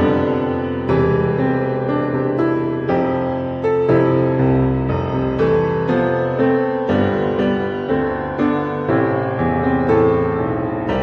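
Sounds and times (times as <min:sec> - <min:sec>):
gentle piano music: 0:00.0 - 0:11.0.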